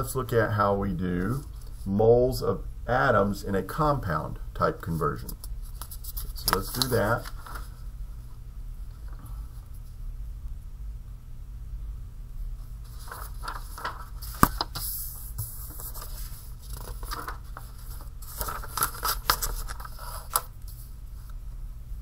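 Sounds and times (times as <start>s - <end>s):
paper rustling on desk: 4.9s - 7.8s, 12.6s - 21.4s.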